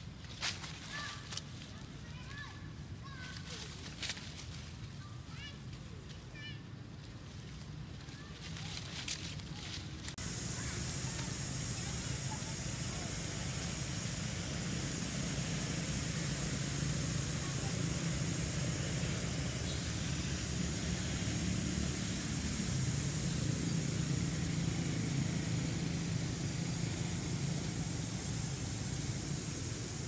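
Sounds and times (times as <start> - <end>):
low hum: 10.0 - 30.0
high-pitched hiss: 10.2 - 30.0.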